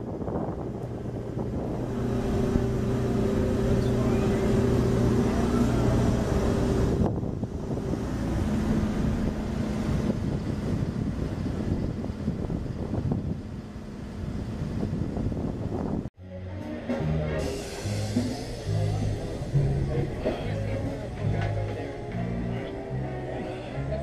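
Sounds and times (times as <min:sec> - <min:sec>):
low machinery hum: 0:00.0 - 0:16.1, 0:17.0 - 0:24.0
wind buffeting microphone: 0:00.0 - 0:16.2.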